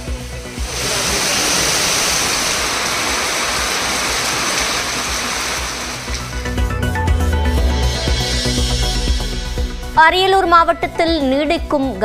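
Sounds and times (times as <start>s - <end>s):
heavy rain pouring: 0.0s - 6.7s.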